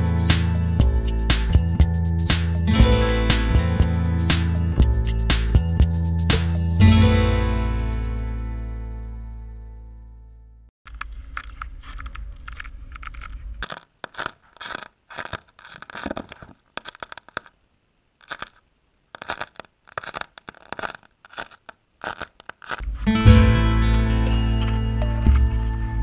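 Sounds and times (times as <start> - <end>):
crunching and scraping on ice: 10.9 - 17.6, 18.2 - 23.1.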